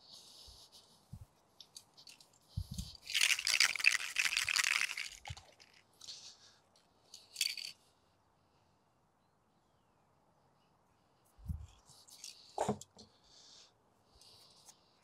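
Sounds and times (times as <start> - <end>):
spray can mixing ball rattling: 2.0 - 5.8, 7.3 - 7.7.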